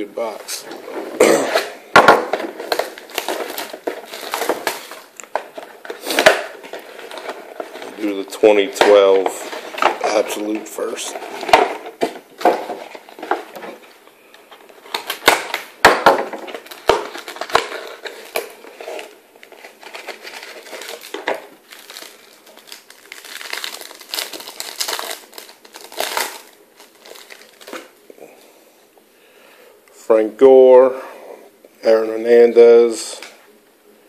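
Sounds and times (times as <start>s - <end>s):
plastic wrapper crinkling: 0.2s - 28.1s
cardboard box and cards rustling: 2.1s - 13.9s, 14.5s - 27.9s.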